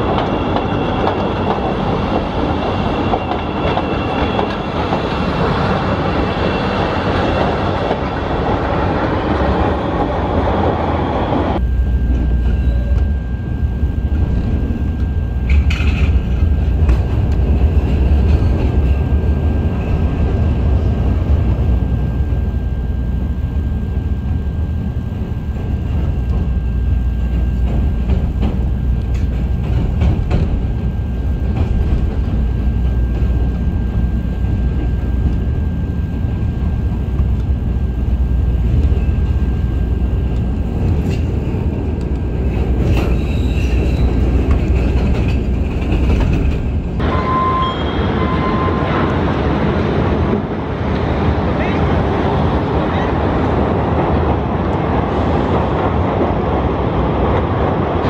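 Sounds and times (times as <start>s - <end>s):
train wheels clattering over rails: 0.0s - 10.2s, 15.4s - 21.3s, 25.1s - 47.0s
deep rumble inside train car: 0.0s - 58.0s
thin high whine: 11.5s - 16.9s
brief high squeal: 47.0s - 49.0s.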